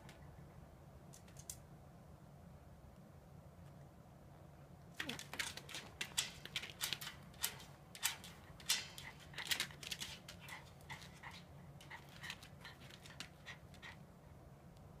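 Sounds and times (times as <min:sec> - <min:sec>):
dog pawing at pen door: 0:05.0 - 0:13.4.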